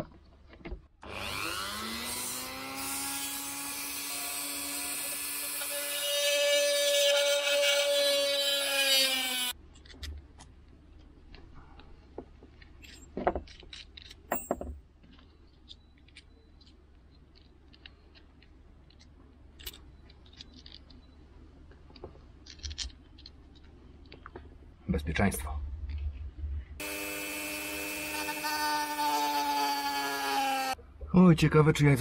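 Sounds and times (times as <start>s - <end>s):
rotary tool whining: 26.8s - 30.8s.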